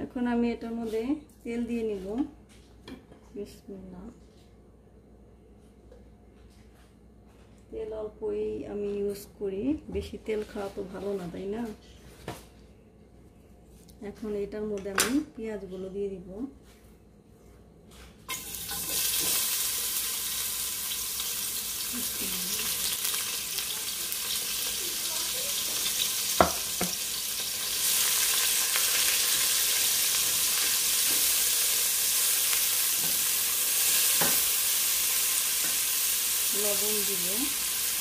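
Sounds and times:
onions sizzling in oil: 18.3s - 38.0s.

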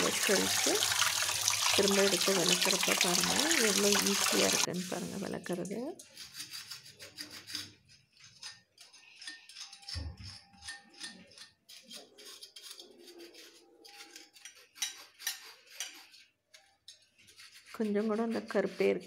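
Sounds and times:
scrub pad rubbing metal lamp: 6.2s - 19.0s.

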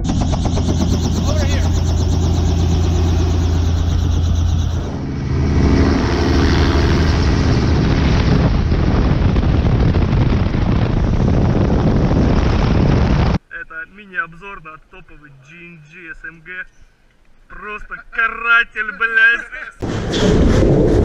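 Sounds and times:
helicopter engine and rotor drone: 0.0s - 8.8s
rushing air: 0.0s - 13.4s.

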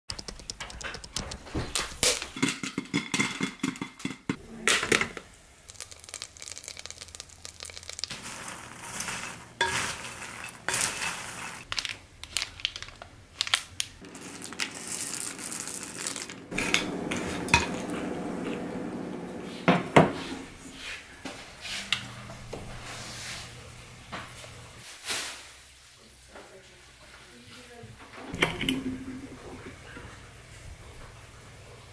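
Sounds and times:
metal pot and lid clattering: 2.1s - 5.2s, 8.4s - 11.6s, 14.0s - 19.1s
candy wrappers crinkling: 5.7s - 9.5s, 10.1s - 16.5s.

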